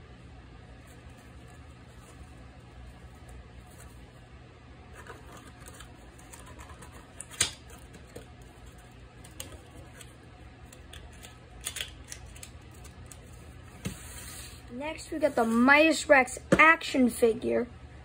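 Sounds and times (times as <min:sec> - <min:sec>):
playing cards clicking and tapping: 0:05.0 - 0:10.1, 0:10.7 - 0:13.2.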